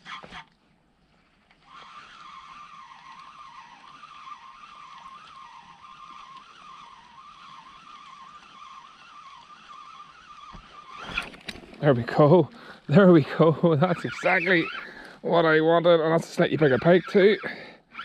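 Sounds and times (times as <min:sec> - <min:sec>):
fishing reel whining: 0:01.6 - 0:18.0.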